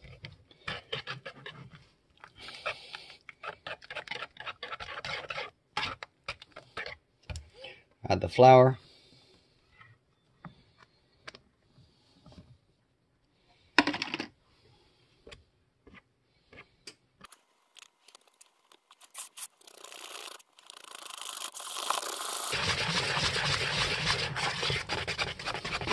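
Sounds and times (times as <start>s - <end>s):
wire whisk in plastic bowl: 18.1s - 25.9s.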